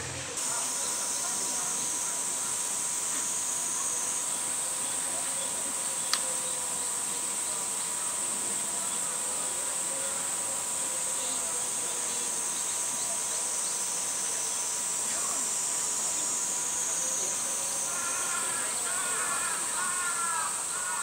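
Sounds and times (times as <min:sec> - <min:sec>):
cicadas droning: 0:00.0 - 0:21.0
sharp click: 0:06.1 - 0:06.3.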